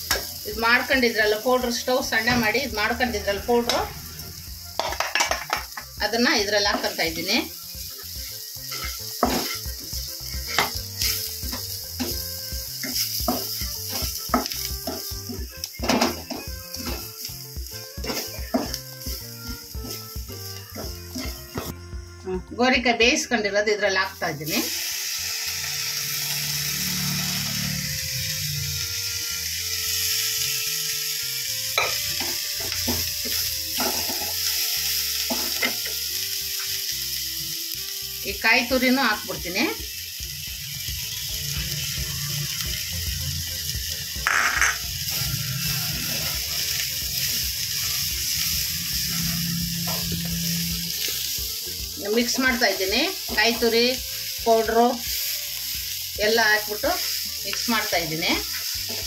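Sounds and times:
onions sizzling in oil: 0.0s - 59.0s.

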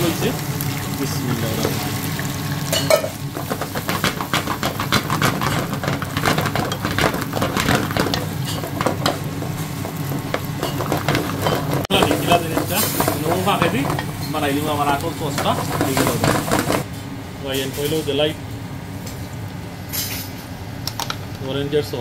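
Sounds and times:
vegetables sizzling in oil: 0.0s - 16.9s
wooden spatula scraping a pan: 3.3s - 16.8s.

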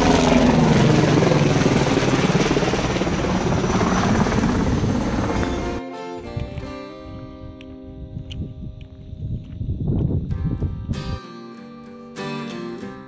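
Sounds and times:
helicopter flying overhead: 0.0s - 5.9s
plucked guitar music: 5.3s - 9.2s, 10.2s - 13.0s.

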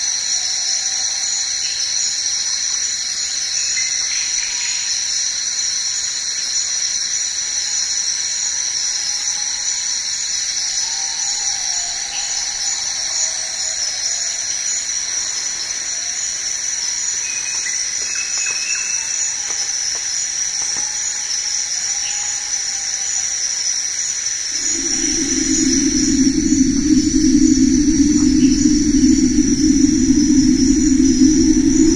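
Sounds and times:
chorus of insects: 6.8s - 31.9s
faint whistled notes: 24.6s - 31.9s.

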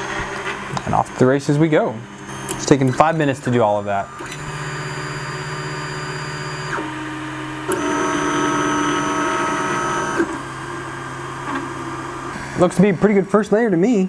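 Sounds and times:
fans running: 0.0s - 14.0s
stepper motors whining: 0.8s - 11.0s.

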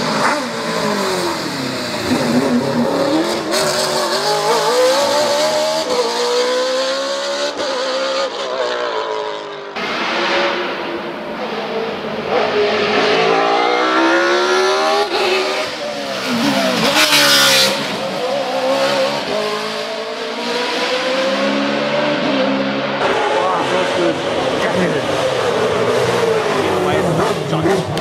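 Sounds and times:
racing car engine revving: 0.0s - 28.0s.

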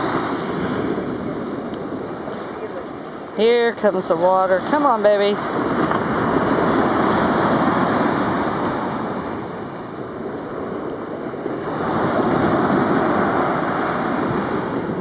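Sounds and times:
ocean surf washing: 0.0s - 15.0s.

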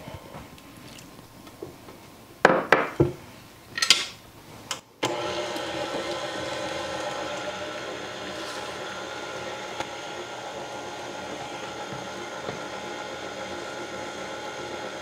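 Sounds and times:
stand mixer running: 5.0s - 15.0s.

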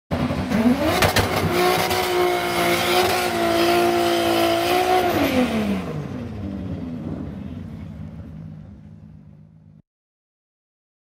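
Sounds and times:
engine revving: 0.1s - 8.4s.

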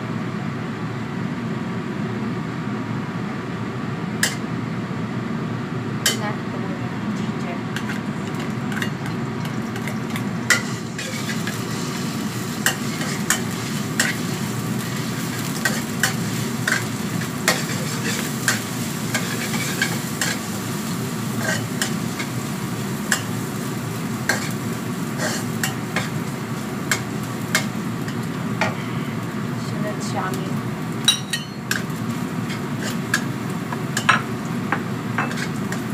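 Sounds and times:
shrimp sizzling in oil: 7.6s - 35.9s
metal spatula scraping a wok: 7.7s - 22.4s, 24.3s - 28.3s, 31.3s - 33.3s, 35.2s - 35.9s.

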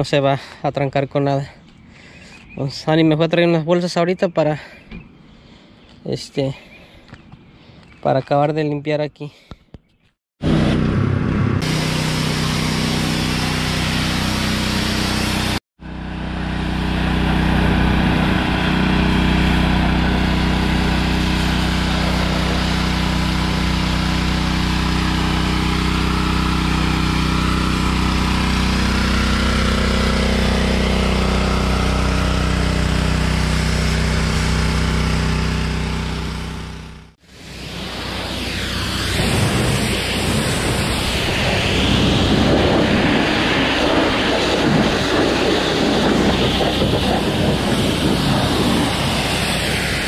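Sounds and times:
small engine running: 10.4s - 50.0s.

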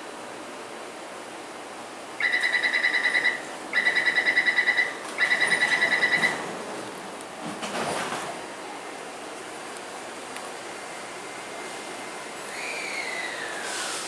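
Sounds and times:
rapid high beeping buzzer: 2.2s - 6.4s.

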